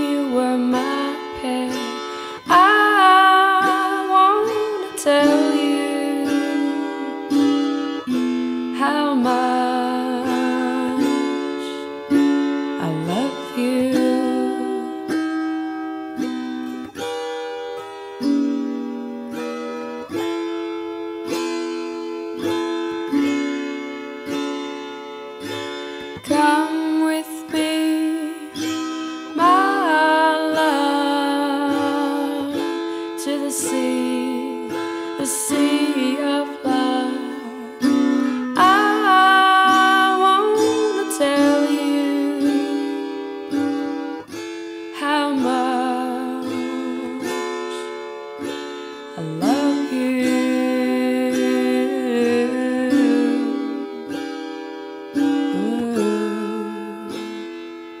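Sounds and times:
wordless vocals: 0.0 - 7.8, 8.7 - 15.2, 26.2 - 43.8, 45.0 - 48.0, 49.2 - 54.3, 55.2 - 57.4
plucked acoustic guitar: 0.0 - 58.0.

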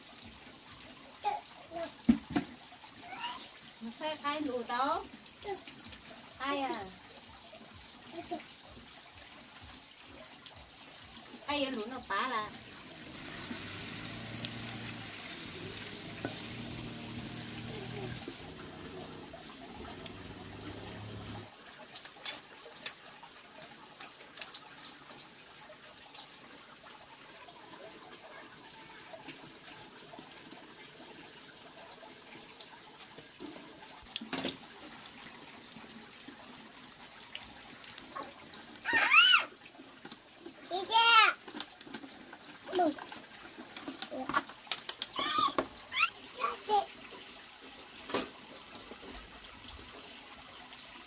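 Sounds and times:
batter sizzling in hot oil: 0.0 - 25.2.

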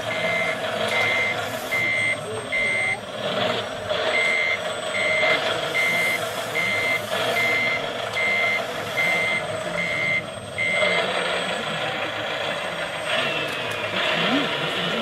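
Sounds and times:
reversing alarm beeps: 0.0 - 11.6.

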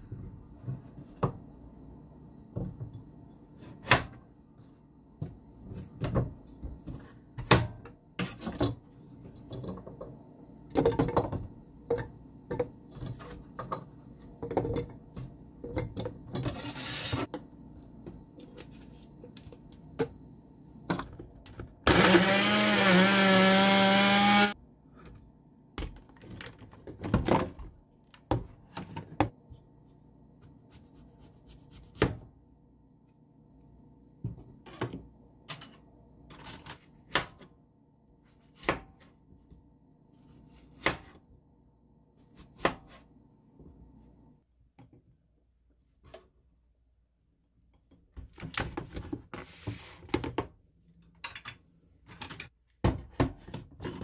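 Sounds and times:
electric blender running: 21.9 - 24.6.

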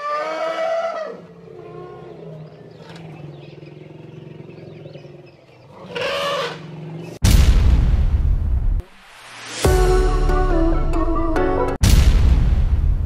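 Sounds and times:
elephant trumpeting: 0.0 - 3.1, 5.7 - 7.1
loud boom: 7.2 - 8.8, 11.8 - 13.0.

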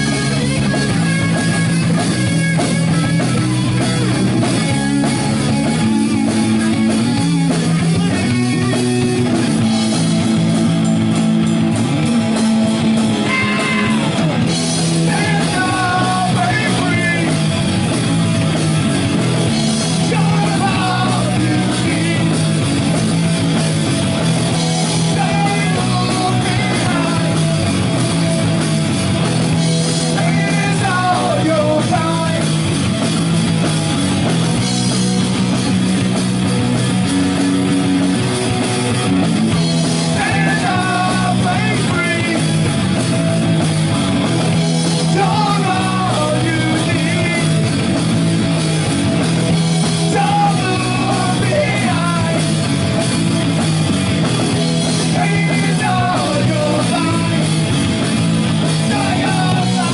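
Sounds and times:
drum kit: 0.0 - 59.9
electric bass: 0.0 - 59.9
electric guitar: 0.0 - 59.9
person singing: 15.0 - 17.4, 20.0 - 22.4, 25.0 - 27.6, 30.2 - 32.5, 40.1 - 42.5, 45.0 - 47.6, 50.0 - 52.7, 55.0 - 57.6, 58.8 - 59.9.

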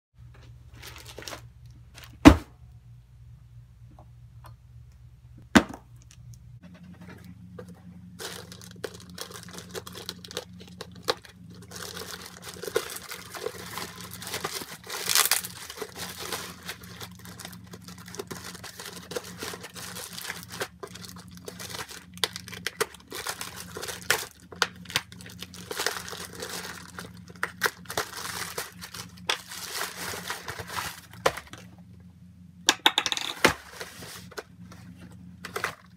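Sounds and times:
steady low hum: 0.2 - 35.9
plastic bag tearing and crinkling: 0.7 - 2.2, 8.1 - 31.4.

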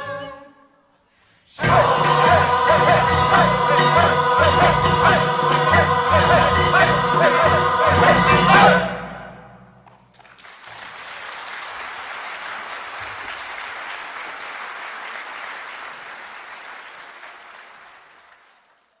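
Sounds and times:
audience applauding: 9.9 - 19.0.

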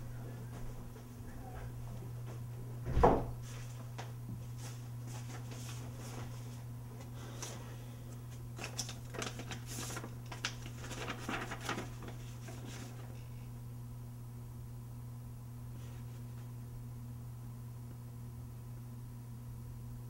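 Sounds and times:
low electrical hum: 0.0 - 20.0
loud thump: 2.9 - 3.3.

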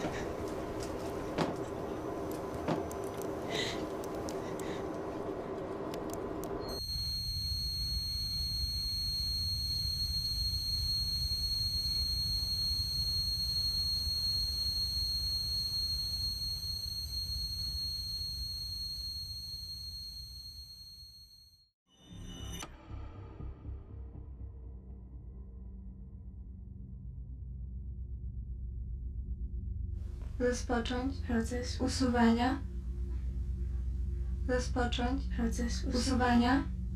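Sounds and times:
high-pitched ringing tone: 6.6 - 22.7.

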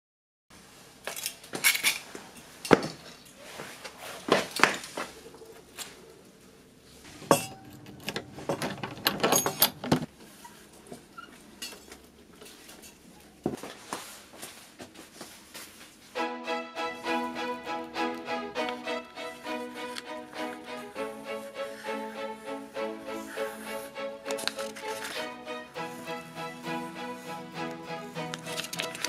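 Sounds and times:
metal hand tools clinking: 7.2 - 9.9.

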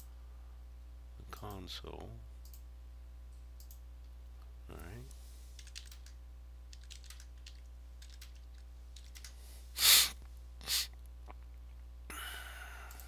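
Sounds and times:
keyboard keystrokes: 5.6 - 6.1, 6.7 - 9.3.

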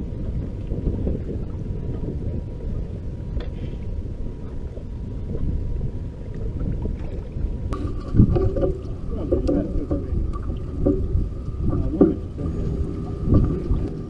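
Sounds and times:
water against hull: 0.0 - 14.0
wind buffeting microphone: 0.0 - 14.0
faint steady high whine: 7.7 - 14.0.

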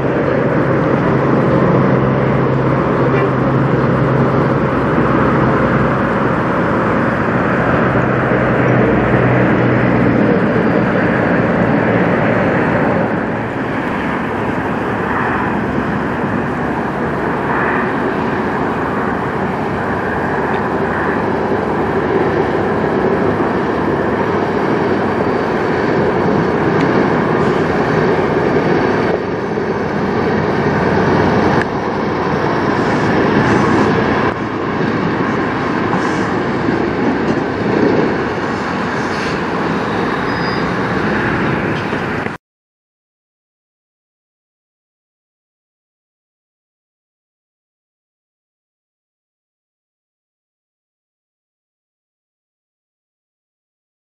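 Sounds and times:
truck diesel engines running: 0.0 - 42.4.

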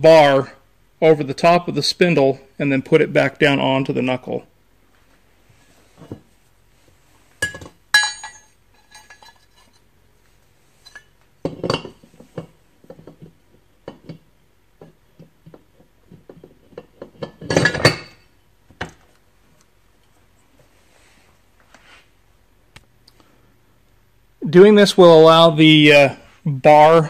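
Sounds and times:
metal parts clinking: 7.4 - 9.8
metal parts knocking and scraping: 7.4 - 9.8, 16.1 - 18.2.

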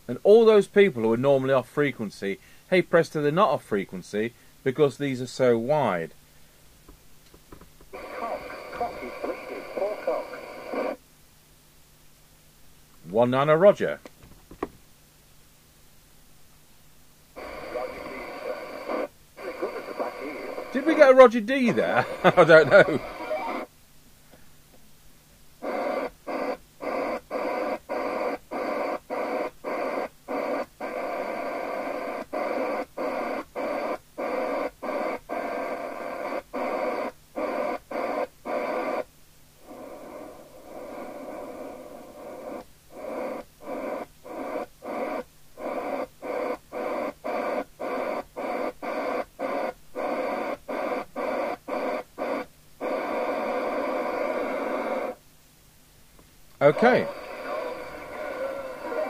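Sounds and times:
radio signal cutting in and out: 7.9 - 11.0, 17.3 - 23.8, 25.6 - 55.2, 56.6 - 59.0.

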